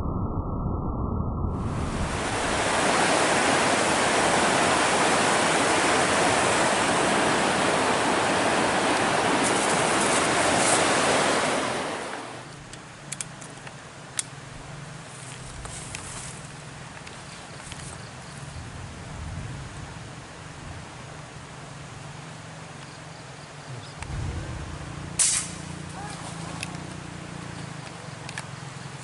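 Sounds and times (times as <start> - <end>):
river water rushing: 1.8 - 13.0, 23.7 - 29.0.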